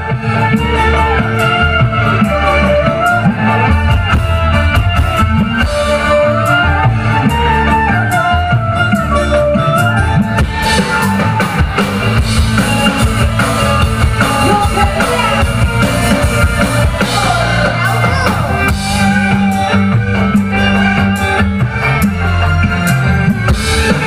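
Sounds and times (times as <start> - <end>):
loud band music over sound system: 0.0 - 24.0
person singing: 10.4 - 24.0.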